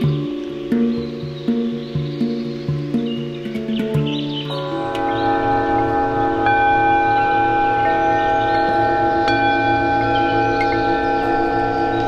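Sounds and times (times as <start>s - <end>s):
metal singing bowls ringing: 4.5s - 12.0s
slow pulsing hum: 4.5s - 12.0s.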